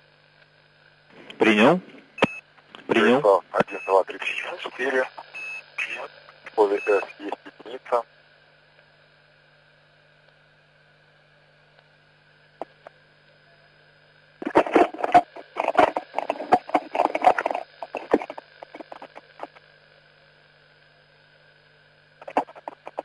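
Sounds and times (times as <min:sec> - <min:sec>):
steady low hum: 0:00.0 - 0:23.0
radio hiss: 0:01.1 - 0:08.1, 0:14.4 - 0:19.7, 0:22.2 - 0:23.0
garbled radio transmission crackling: 0:01.3 - 0:08.0, 0:14.4 - 0:19.6, 0:22.2 - 0:23.0.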